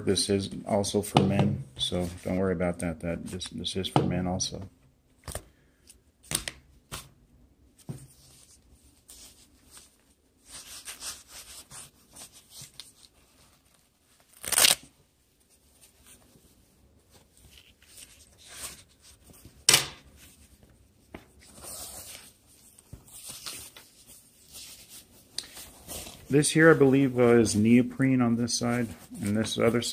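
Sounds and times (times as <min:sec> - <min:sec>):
loud fabric rips: 0:14.3 - 0:14.9
rustling and scuffing of fabric: 0:15.2 - 0:27.8.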